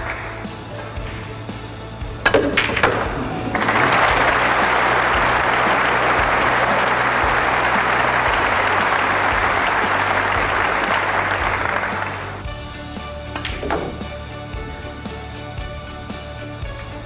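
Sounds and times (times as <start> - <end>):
audience applauding: 0.0 - 1.3, 2.6 - 12.8.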